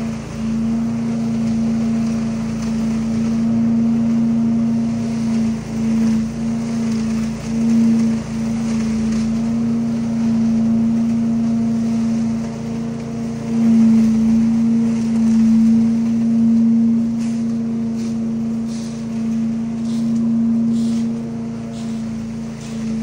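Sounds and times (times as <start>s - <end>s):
leaf vacuum engine drone: 0.0s - 23.0s
short hissing rushes: 18.0s - 23.0s.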